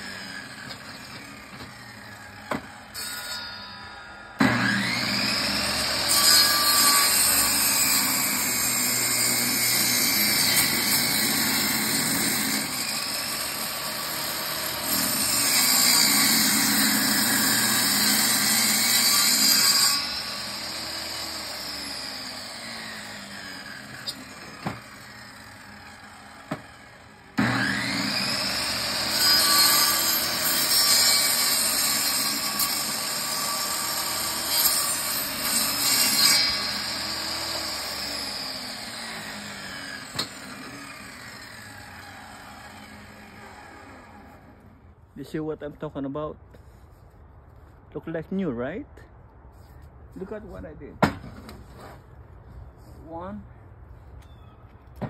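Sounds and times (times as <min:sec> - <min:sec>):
saw motor winding down: 0:04.4 - 0:07.6
table saw ripping wood: 0:04.4 - 0:44.6.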